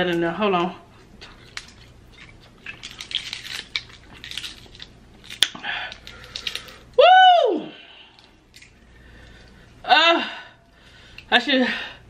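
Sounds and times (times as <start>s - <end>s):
crab shells cracking: 1.2s - 7.0s, 8.1s - 9.6s.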